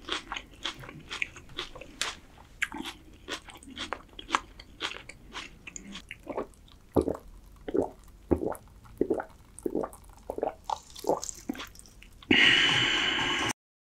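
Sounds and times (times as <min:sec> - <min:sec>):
wet gulping swallows: 0:05.7 - 0:12.3.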